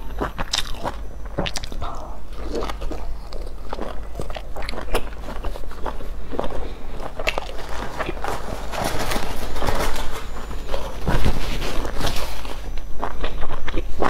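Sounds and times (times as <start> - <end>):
person chewing soft food: 0.0 - 14.0.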